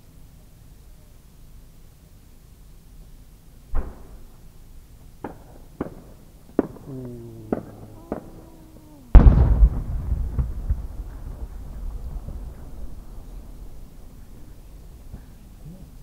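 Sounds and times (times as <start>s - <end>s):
firework shell boom with echo: 3.7s - 4.3s, 9.1s - 12.9s
sharp pops: 5.2s - 9.8s.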